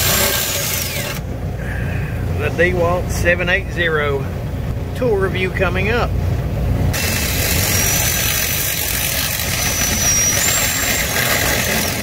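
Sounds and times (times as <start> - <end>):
cordless drill boring metal: 0.0 - 1.2, 7.0 - 12.0.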